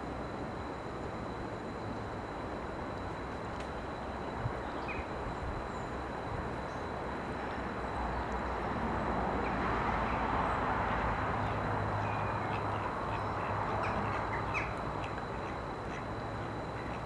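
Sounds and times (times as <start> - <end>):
faint high whine: 0.0 - 17.0
faint bird chirps: 11.4 - 17.0.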